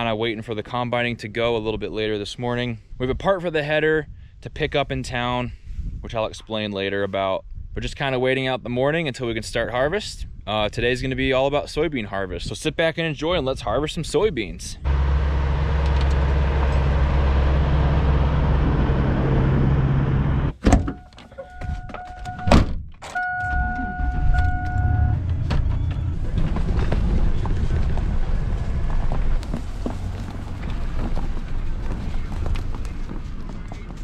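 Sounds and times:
diesel truck driving past: 14.8 - 20.6, 24.2 - 32.6
pickup engine starting and running: 14.8 - 21.0, 23.2 - 32.7
dashboard warning tone: 14.9 - 26.2.

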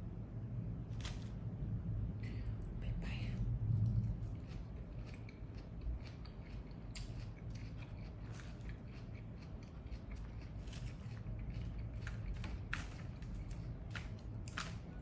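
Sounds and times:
crunching and rustling lettuce: 0.9 - 1.5, 3.7 - 15.0.

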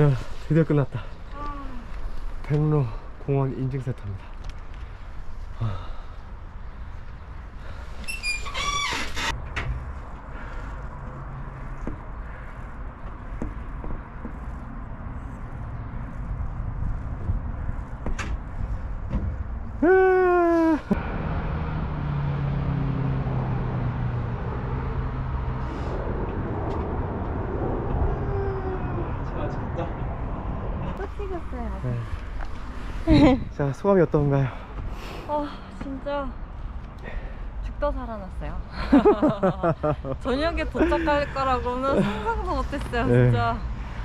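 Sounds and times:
road traffic rushing: 0.0 - 19.8, 20.9 - 44.0
low background rumble: 24.8 - 31.9.

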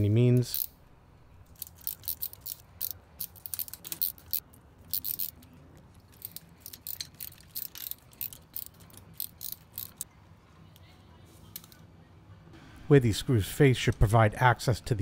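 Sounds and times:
socket ratchet clicking: 1.5 - 5.5, 6.1 - 10.0.

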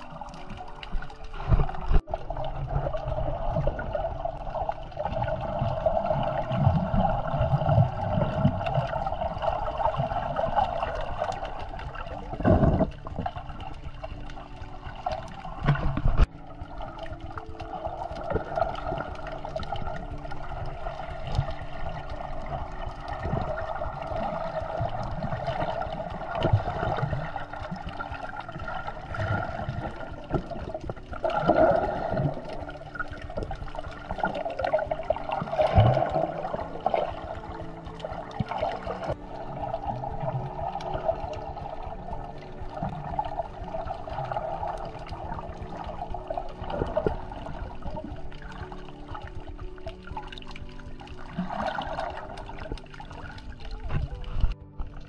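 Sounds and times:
muffled underwater rushing water: 0.0 - 55.0.

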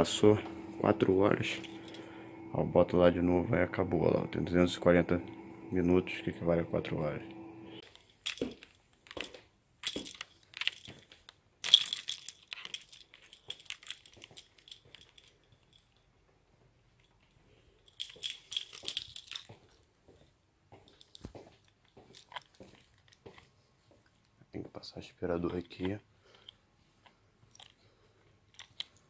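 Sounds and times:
light clattering and rattling: 7.8 - 24.2.

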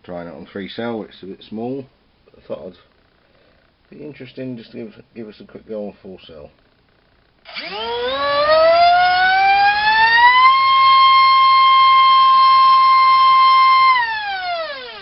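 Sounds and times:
drone motor whine: 7.4 - 15.0.

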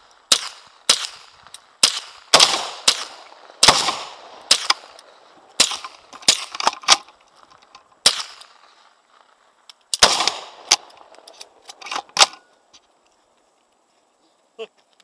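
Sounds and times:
gunshots echoing: 0.3 - 6.6, 8.0 - 8.6, 10.0 - 11.1.

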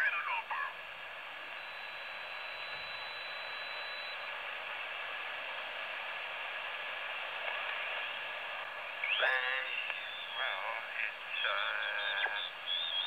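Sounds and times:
radio receiver static hiss: 0.0 - 13.0
faint high whistle: 1.6 - 4.3.

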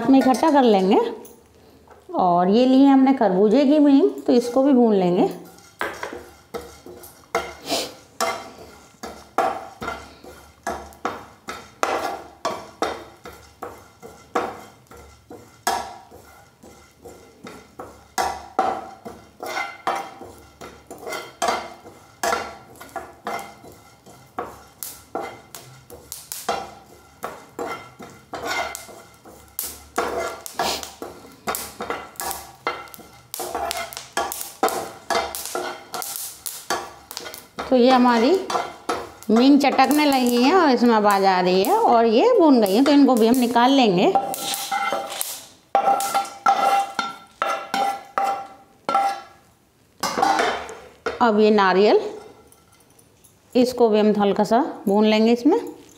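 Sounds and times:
metal spoon scraping a frying pan: 0.0 - 1.0, 3.8 - 49.4, 50.0 - 53.3.

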